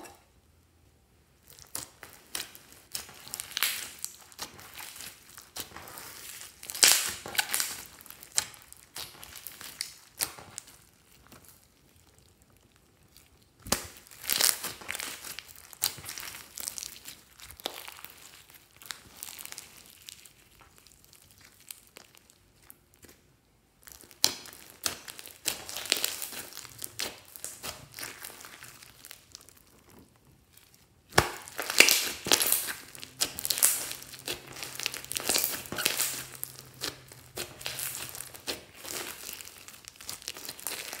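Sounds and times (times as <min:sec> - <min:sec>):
slime crackling and popping: 0:01.4 - 0:41.0.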